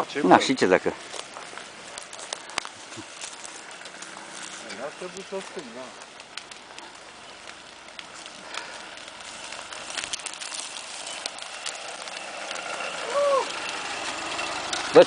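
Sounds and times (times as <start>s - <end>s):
dry grass crunching under car: 0.0s - 15.0s
person shouting: 13.0s - 13.6s.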